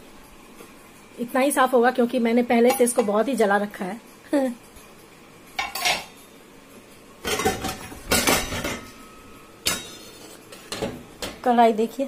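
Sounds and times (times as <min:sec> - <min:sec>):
metal pots and pans clanking: 0:02.6 - 0:03.2, 0:05.6 - 0:06.2, 0:07.2 - 0:11.4.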